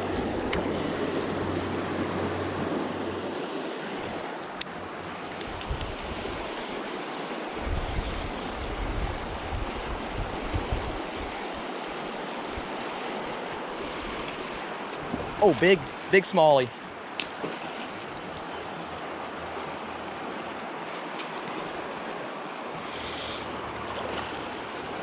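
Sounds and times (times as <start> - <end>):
wind buffeting microphone: 4.1 - 6.6, 7.6 - 11.7, 13.7 - 16.0
river flowing over rocks: 11.0 - 25.0.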